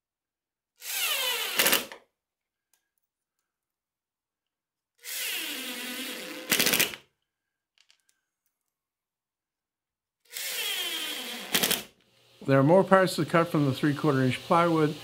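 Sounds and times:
impact driver driving screws: 0:00.8 - 0:02.0, 0:05.0 - 0:07.0, 0:10.3 - 0:12.0.

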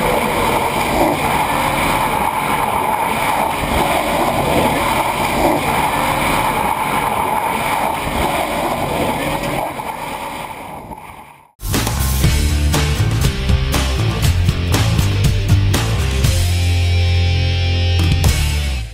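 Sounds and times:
tyres spinning in a burnout: 0:00.0 - 0:11.5.

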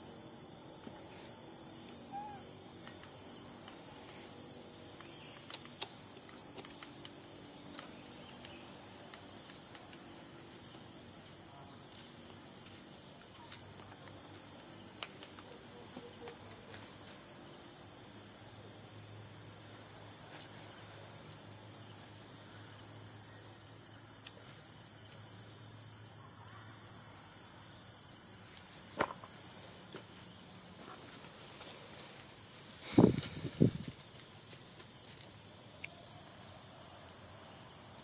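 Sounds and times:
insect chorus shrilling: 0:00.0 - 0:07.2, 0:30.3 - 0:38.0.

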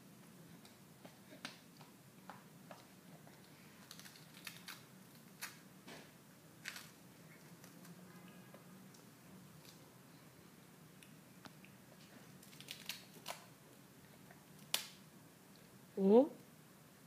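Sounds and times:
cracker crunching: 0:02.7 - 0:05.6, 0:06.6 - 0:08.0, 0:12.4 - 0:13.5
packaging crinkling: 0:03.8 - 0:05.6, 0:06.6 - 0:07.9, 0:12.4 - 0:13.4.

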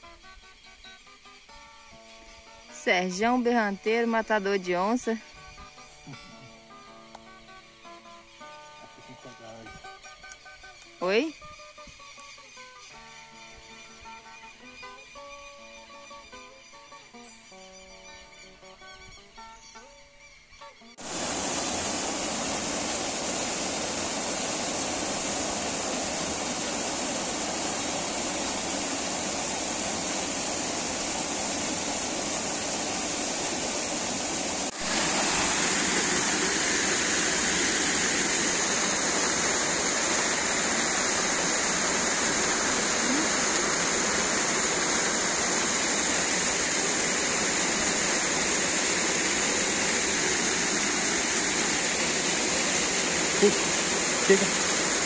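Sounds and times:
water rushing over waterfall: 0:21.0 - 0:55.0.

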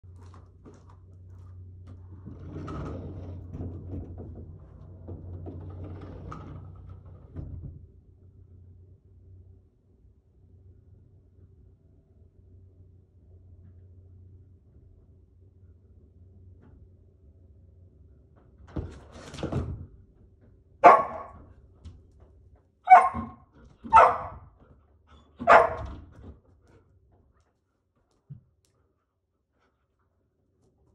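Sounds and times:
sliding glass door rolling: 0:01.9 - 0:07.8
low steady hum: 0:06.6 - 0:19.0
dog barking: 0:20.8 - 0:21.4, 0:22.9 - 0:24.5, 0:25.4 - 0:26.0.

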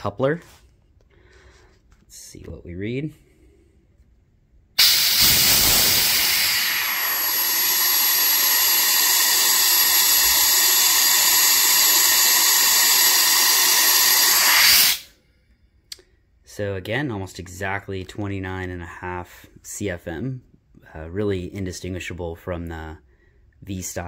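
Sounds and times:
compressed air hissing: 0:04.8 - 0:15.1.

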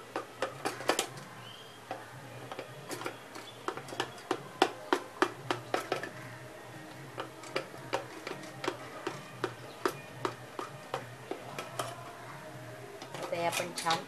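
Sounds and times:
knife tapping a metal tin: 0:01.9 - 0:12.1.

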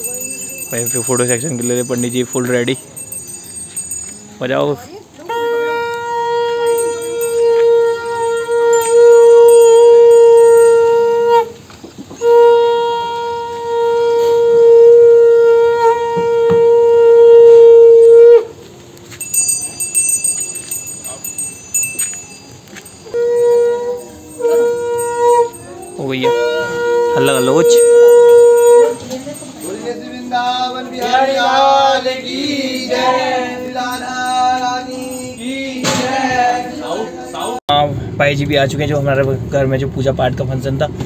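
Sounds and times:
brass hand bell ringing: 0:00.0 - 0:04.6, 0:06.0 - 0:11.4, 0:19.1 - 0:37.7
conch shell blasts: 0:05.3 - 0:18.6, 0:19.2 - 0:30.3.

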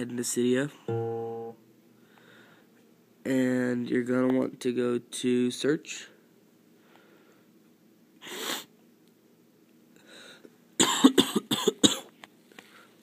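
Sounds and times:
person coughing: 0:10.8 - 0:12.1.

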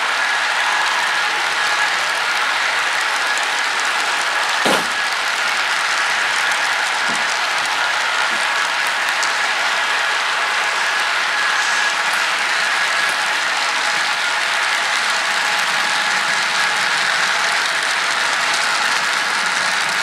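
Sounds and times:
train wheels rattling on rail: 0:03.0 - 0:05.5.

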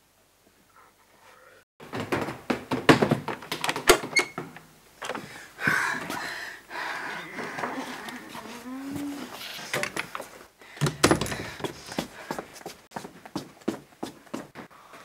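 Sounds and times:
knocking and rattling on door: 0:01.8 - 0:04.4.

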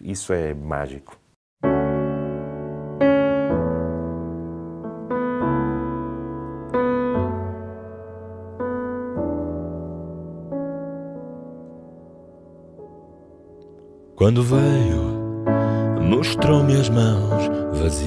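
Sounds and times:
slow piano chords: 0:01.6 - 0:18.0.

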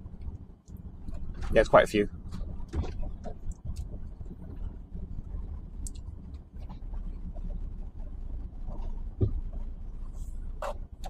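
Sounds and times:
diesel engine and road rumble: 0:00.0 - 0:11.0.

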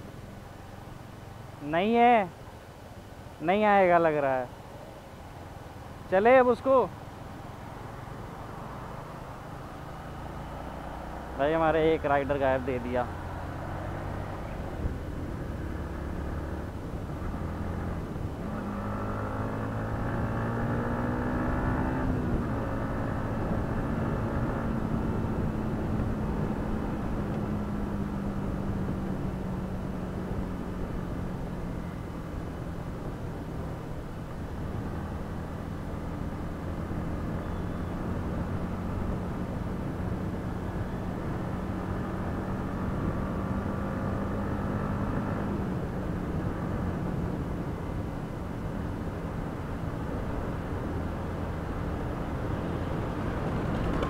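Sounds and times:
wind and road noise: 0:00.0 - 0:54.0
motorcycle engine accelerating: 0:13.1 - 0:32.0, 0:41.1 - 0:47.1, 0:51.6 - 0:54.0.

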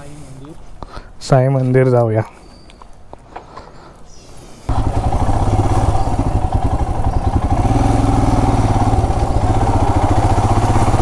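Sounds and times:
single-cylinder motorcycle engine: 0:04.7 - 0:11.0.

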